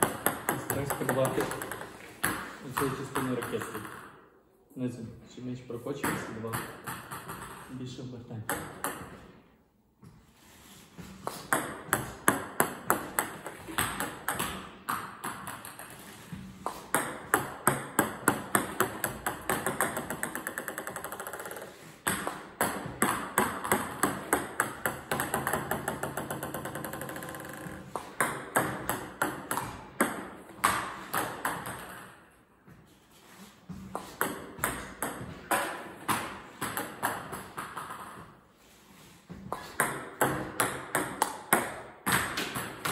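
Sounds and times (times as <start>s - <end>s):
table tennis ball bouncing: 0.0s - 4.3s, 6.0s - 9.6s, 11.2s - 32.8s, 33.7s - 38.5s, 39.3s - 42.9s.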